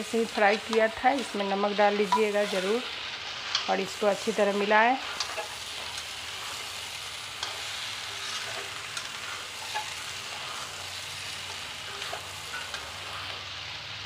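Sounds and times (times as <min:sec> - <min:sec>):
vegetables sizzling in oil: 0:00.0 - 0:14.0
wooden spatula scraping pan: 0:00.4 - 0:06.8, 0:07.4 - 0:10.8.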